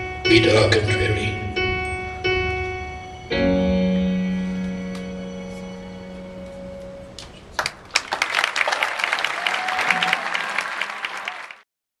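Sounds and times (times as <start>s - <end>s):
held keyboard chord: 0.0s - 7.5s
audience applause: 7.5s - 11.7s.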